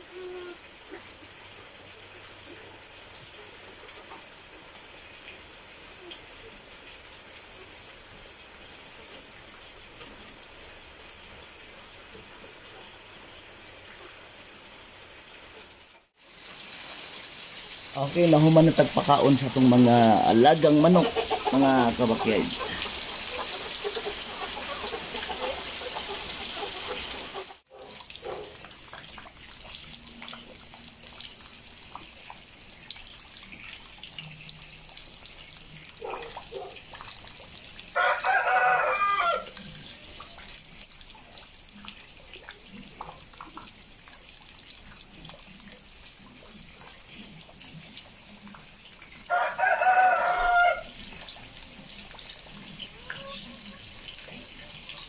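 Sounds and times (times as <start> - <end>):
heavy rain on concrete: 0.0 - 55.0
water dripping: 0.8 - 55.0
rooster crowing: 38.0 - 39.6, 49.3 - 50.9.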